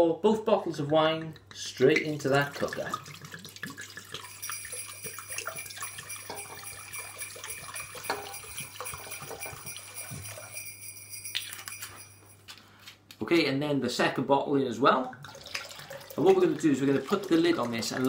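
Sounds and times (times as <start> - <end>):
wine pouring into ceramic crock: 0.7 - 11.0, 15.1 - 18.0.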